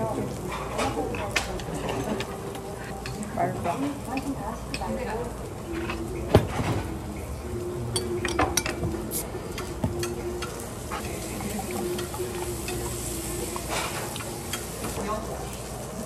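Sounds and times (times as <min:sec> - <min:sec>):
meat sizzling on a grill: 0:00.0 - 0:16.0.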